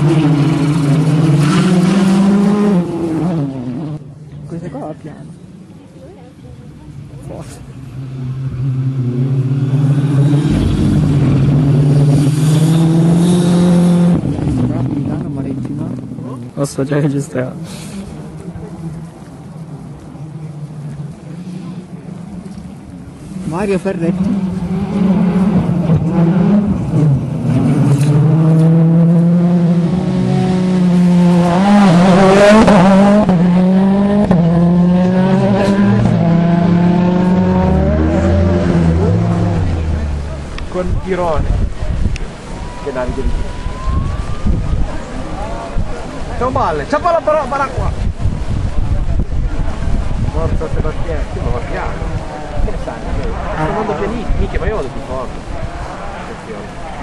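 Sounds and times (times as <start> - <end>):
rally car engine accelerating: 0.0 - 4.0, 7.9 - 16.0, 23.8 - 42.9.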